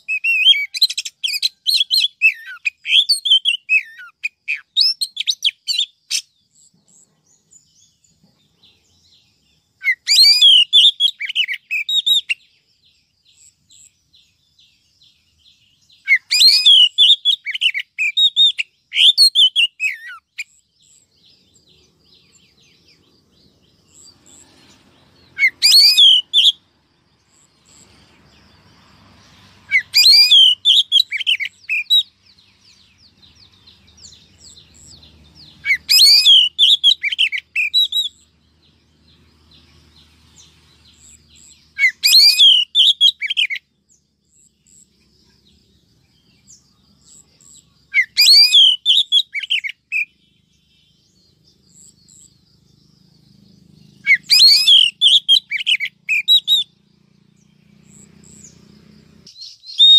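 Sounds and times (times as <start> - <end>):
bird whistles and chirps: 0.0 - 26.7, 29.4 - 38.8, 40.3 - 43.7, 46.4 - 52.4, 53.7 - 56.9, 57.5 - 59.9.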